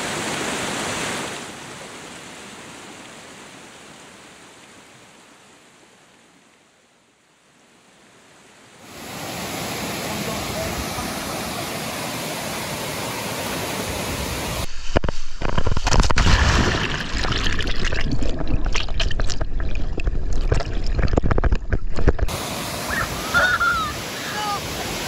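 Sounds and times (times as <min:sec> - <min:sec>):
waterfall pouring into pool: 0:09.0 - 0:25.0
muffled underwater rush: 0:14.3 - 0:22.6
underwater clicks and crackles: 0:14.7 - 0:22.3.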